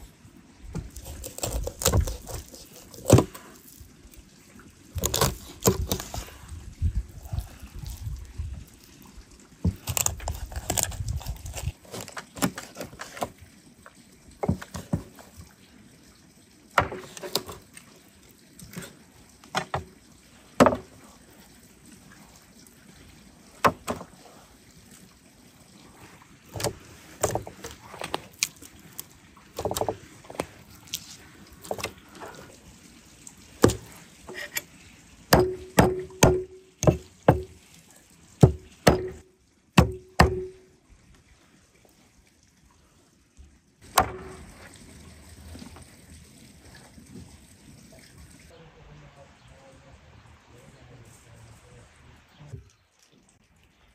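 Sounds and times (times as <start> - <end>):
wet handling of fish flesh: 5.0 - 13.3, 26.0 - 32.6.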